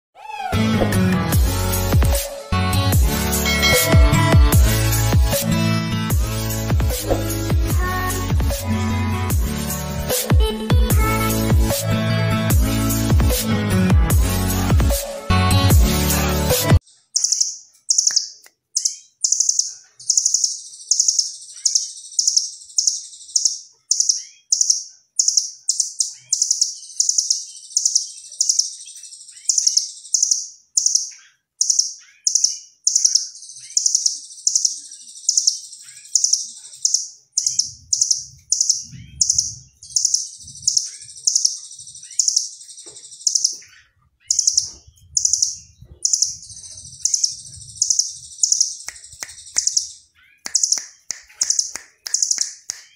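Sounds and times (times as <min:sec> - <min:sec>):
bird singing high trilled chips: 0:03.3 - 0:05.5, 0:16.8 - 0:52.9.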